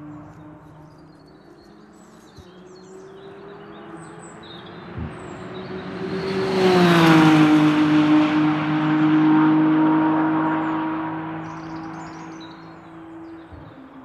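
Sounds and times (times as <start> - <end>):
faint birds chirping: 0.0 - 7.2, 10.3 - 14.0
race car engine passing: 0.0 - 14.0.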